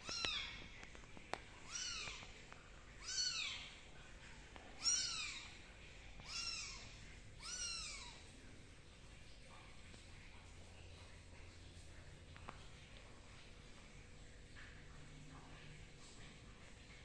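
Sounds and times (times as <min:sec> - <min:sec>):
kittens mewing: 0:06.2 - 0:08.3.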